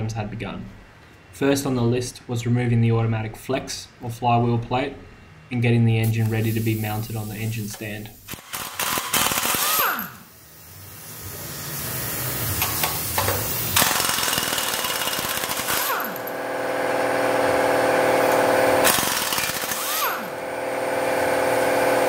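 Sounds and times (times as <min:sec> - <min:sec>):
pneumatic impact wrench: 0:07.7 - 0:22.0.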